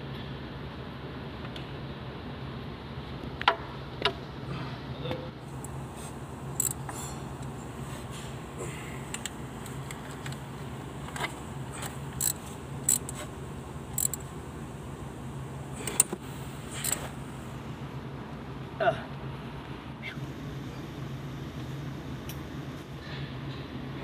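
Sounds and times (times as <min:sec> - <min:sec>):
steady low hum: 0:00.0 - 0:24.0
metallic clicks and clinks of tools: 0:06.6 - 0:06.9, 0:11.2 - 0:13.2, 0:13.9 - 0:14.3.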